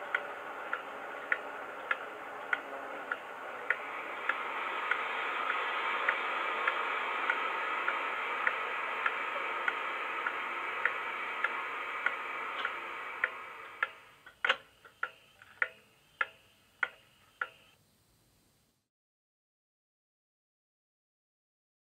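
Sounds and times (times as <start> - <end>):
diesel engine sound from speaker: 0.0 - 14.2
regular ticking: 0.0 - 17.8.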